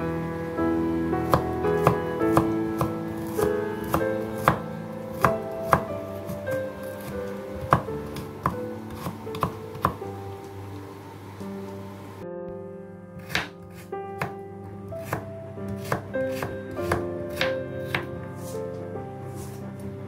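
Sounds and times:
music playing: 0.0 - 20.0
knife chopping on wooden board: 3.8 - 4.6, 5.2 - 10.0, 13.2 - 14.4, 15.0 - 15.2, 15.8 - 18.1.

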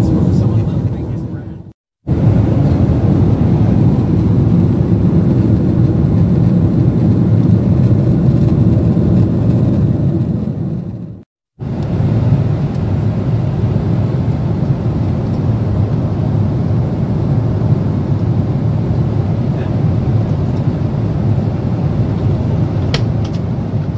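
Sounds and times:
airliner cabin noise: 0.0 - 23.9.

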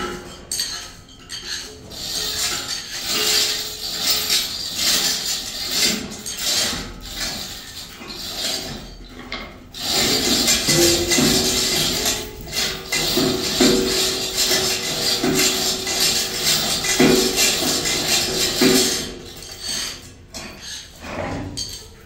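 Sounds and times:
rough rasping scraping: 9.8 - 21.4.

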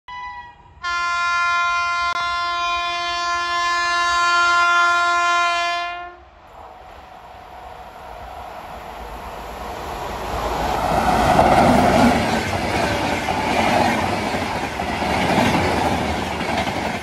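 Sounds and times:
locomotive horn blast: 0.1 - 6.2
rumble of passing train: 3.4 - 17.0.

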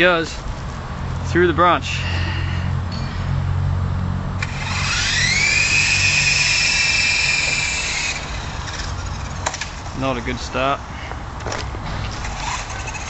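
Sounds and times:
toy helicopter motor whining: 4.4 - 9.6, 12.2 - 13.0.

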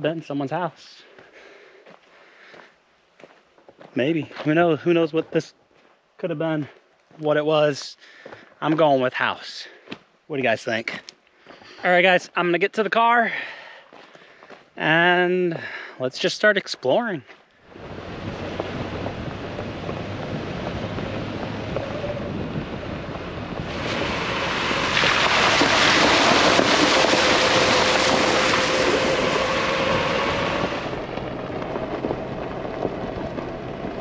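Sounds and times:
tyre and wind noise: 17.7 - 34.0.

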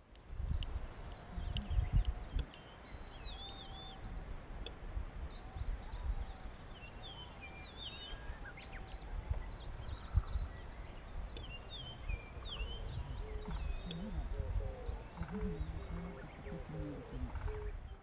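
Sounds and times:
birds chirping and warbling: 0.0 - 18.0
wind rumbling on microphone: 0.0 - 18.0
low drawn-out bird whistle: 1.1 - 4.3.

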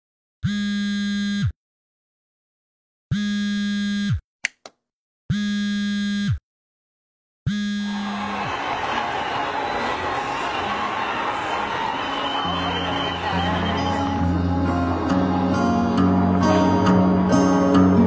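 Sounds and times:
phone vibrating on hard surface: 0.4 - 1.5
short clicks: 4.4 - 4.8
crowd noise: 7.8 - 18.0.

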